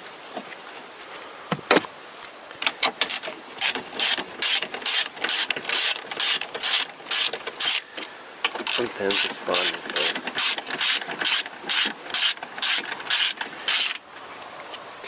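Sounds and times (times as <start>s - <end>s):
hand ratchet clicking: 2.6s - 7.8s, 8.5s - 14.0s.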